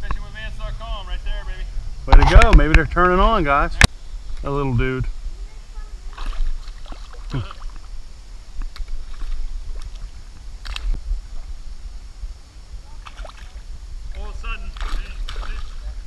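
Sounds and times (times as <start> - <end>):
steady low rumble: 0.0 - 16.0
fish splashing into water: 6.1 - 7.9, 13.0 - 13.6.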